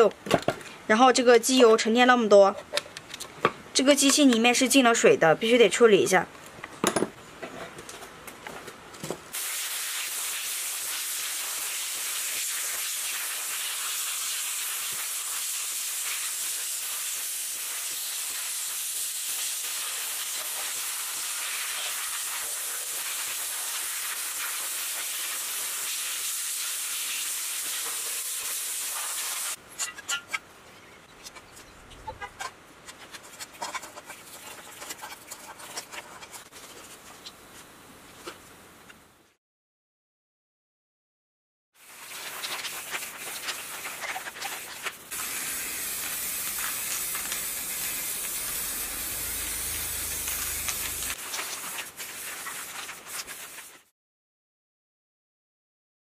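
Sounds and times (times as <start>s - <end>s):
sandblasting hiss: 9.4s - 29.6s, 45.1s - 53.8s.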